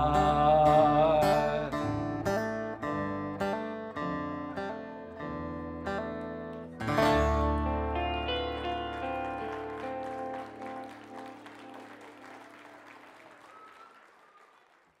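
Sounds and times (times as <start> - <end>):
acoustic guitar chord ringing: 6.8 - 10.8
audience applause: 7.1 - 15.0.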